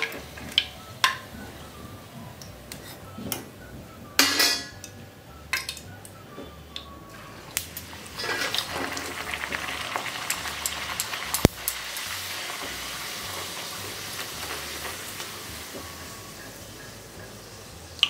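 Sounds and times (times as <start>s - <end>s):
oil sizzling and bubbling: 0.0s - 2.8s, 7.1s - 18.0s
spoon clattering against metal pan: 4.2s - 4.9s.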